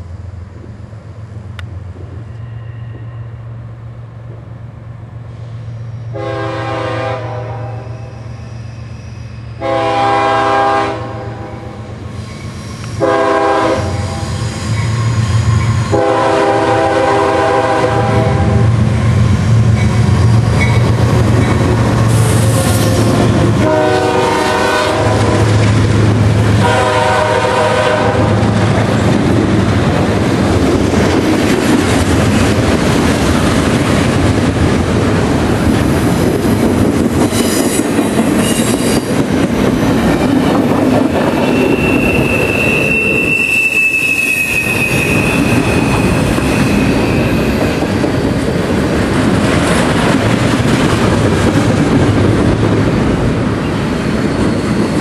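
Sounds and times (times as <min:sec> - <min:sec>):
train cars rumbling and clattering: 0:00.0 - 0:55.0
high wheel squeal: 0:02.2 - 0:03.7, 0:07.7 - 0:09.6, 0:12.1 - 0:13.1, 0:13.9 - 0:16.1, 0:37.2 - 0:39.1, 0:41.2 - 0:48.4
locomotive horn chord: 0:06.1 - 0:07.8, 0:09.6 - 0:11.8, 0:13.0 - 0:14.2, 0:15.9 - 0:18.7, 0:22.6 - 0:25.4, 0:26.6 - 0:28.4.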